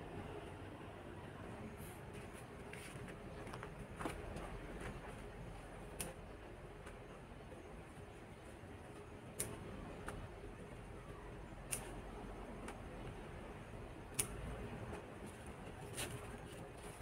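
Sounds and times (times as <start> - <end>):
vegetable stems snapping: 6.0 - 6.2, 9.4 - 10.2, 11.6 - 12.0, 14.1 - 14.4.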